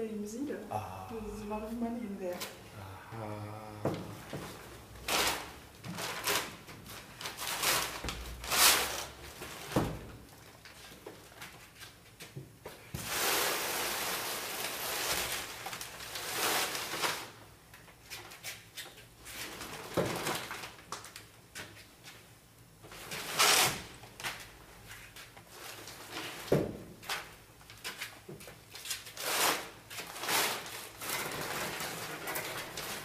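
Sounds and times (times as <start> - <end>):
rustling scrape of paintings: 4.2 - 9.8, 13.0 - 17.4, 27.8 - 33.0.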